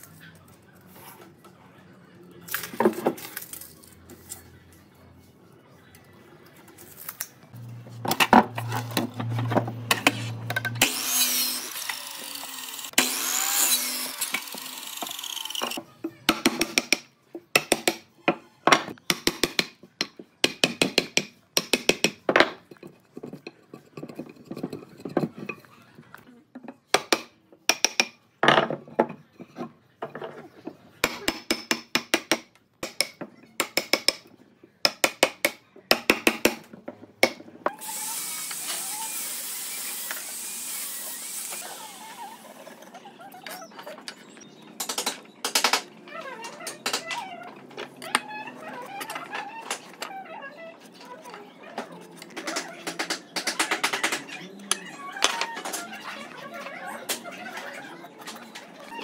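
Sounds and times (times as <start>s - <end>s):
power tool running: 10.0s - 15.8s, 37.8s - 42.6s.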